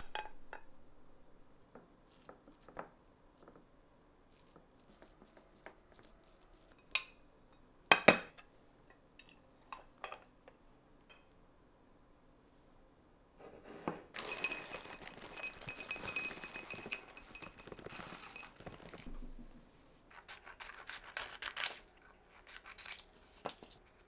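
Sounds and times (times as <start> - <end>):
dishes clinking: 13.8 - 19.0
dishes and utensils tapping: 14.2 - 19.0
frying sizzle: 14.2 - 19.2.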